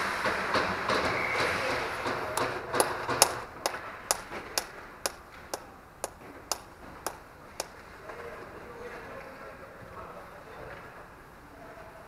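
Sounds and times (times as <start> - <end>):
sharp taps: 2.3 - 7.8.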